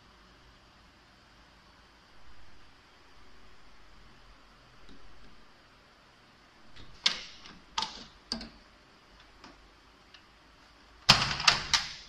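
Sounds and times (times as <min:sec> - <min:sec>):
window hardware clicks: 0:06.8 - 0:08.6.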